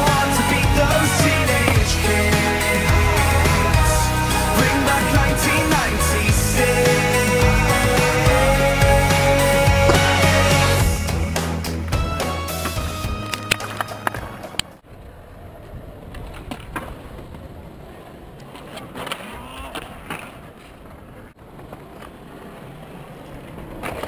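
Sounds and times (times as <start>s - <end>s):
skateboard clacking on ground: 13.3s - 24.0s
skateboard rolling over bricks: 13.4s - 24.0s.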